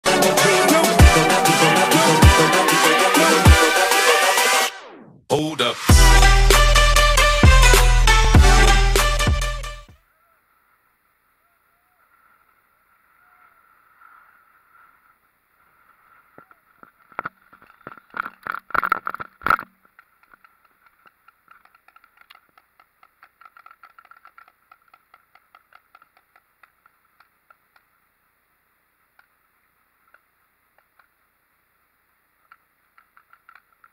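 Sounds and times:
faint evenly spaced ticks: 12.1 - 33.9.

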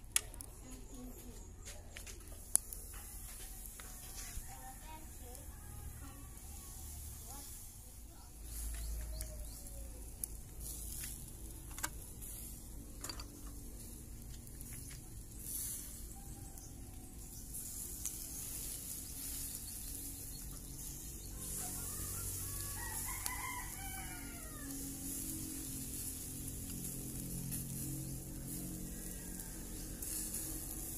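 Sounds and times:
rooster crowing: 21.3 - 25.3, 28.8 - 30.8.

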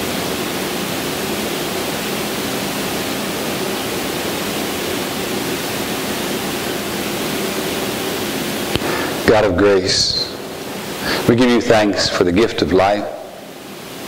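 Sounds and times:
faint hum: 0.0 - 14.0
steady hiss: 0.0 - 14.0.

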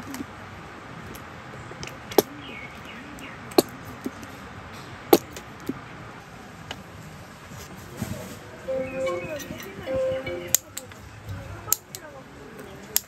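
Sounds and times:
low background hiss: 8.6 - 12.5.

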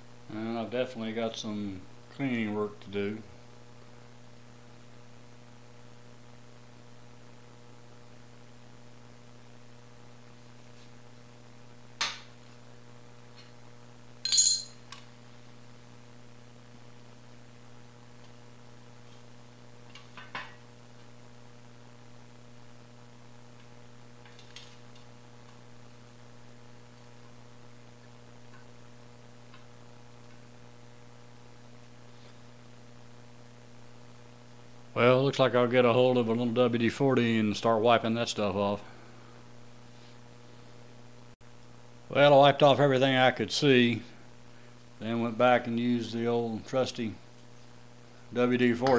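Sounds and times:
steady electrical hum: 0.0 - 48.9
sharp metallic clinks: 14.2 - 14.8.

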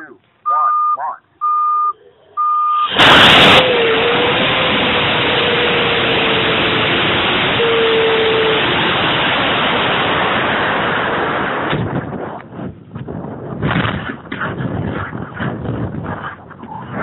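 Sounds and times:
rocket motor ignition blast: 2.7 - 12.7
rocket thrust and air rush: 2.7 - 12.8.

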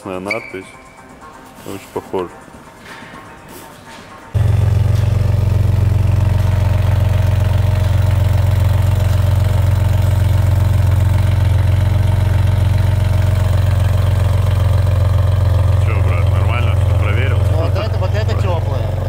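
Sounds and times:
car engine idling: 4.4 - 19.0.

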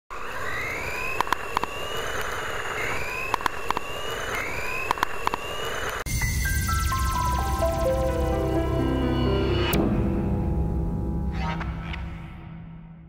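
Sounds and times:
sharp clicks: 1.2 - 6.0
music: 6.1 - 13.0.

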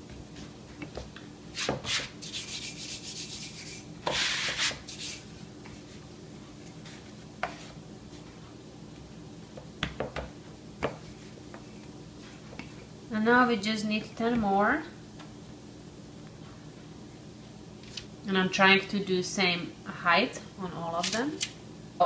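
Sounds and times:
rolling pin rolling dough: 6.8 - 8.5.

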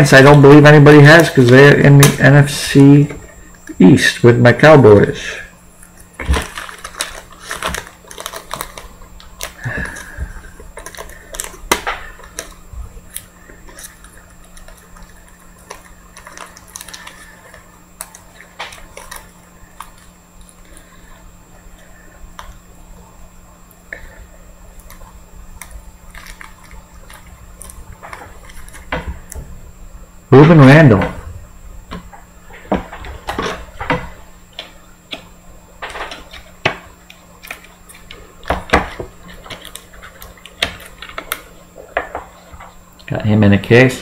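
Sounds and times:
faint low hum: 0.0 - 44.0
plastic sleeve rustling: 5.7 - 21.1.

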